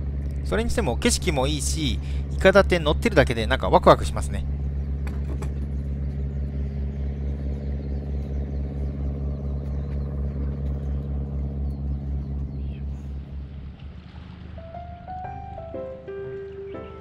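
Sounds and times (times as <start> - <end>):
ferry engine droning: 0.0 - 17.0.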